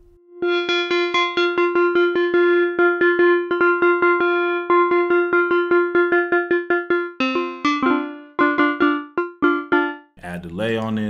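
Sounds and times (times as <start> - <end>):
repeated electric piano note: 3.5 - 10.1.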